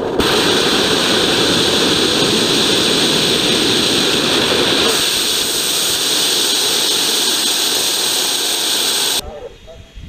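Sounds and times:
rocket engine rumble: 0.0 - 9.2
rocket engine rushing hiss: 0.0 - 9.2.

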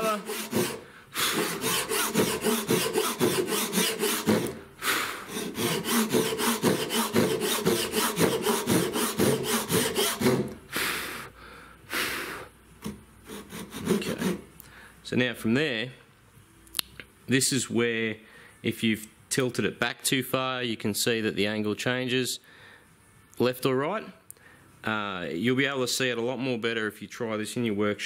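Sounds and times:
hand saw cutting wood: 0.0 - 4.6, 5.2 - 10.6, 13.3 - 14.4.

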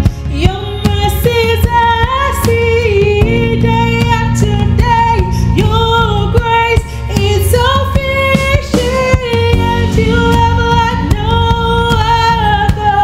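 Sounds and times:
instrumental backing music: 0.0 - 13.0
woman singing: 0.0 - 13.0.

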